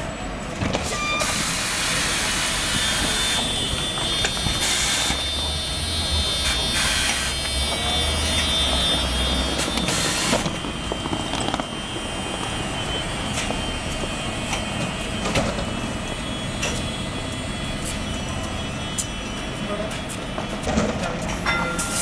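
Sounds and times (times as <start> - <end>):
tram electrical whine and hum: 0.0 - 22.0
air hiss of doors closing: 0.7 - 3.4, 4.5 - 5.2.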